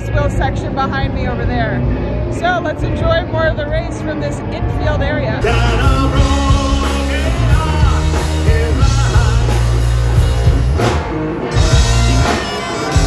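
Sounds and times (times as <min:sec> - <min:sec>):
live rock band: 0:00.0 - 0:13.0
man singing: 0:05.4 - 0:10.0
bagpipes: 0:11.7 - 0:13.0.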